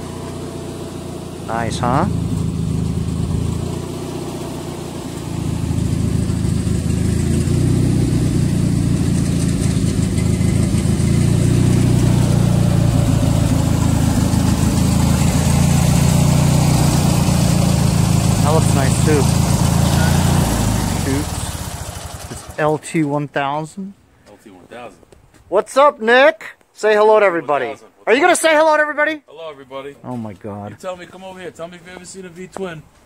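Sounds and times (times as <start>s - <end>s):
engine idling: 0.0s - 22.8s.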